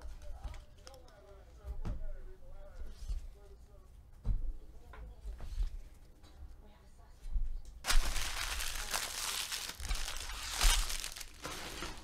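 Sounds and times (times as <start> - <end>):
foil wrapper crinkling and tearing: 7.8 - 12.0.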